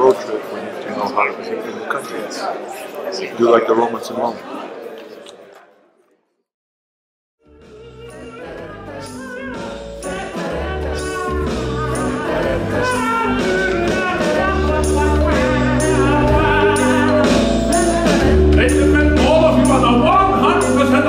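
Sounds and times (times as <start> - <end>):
music with singing: 7.4 - 21.0.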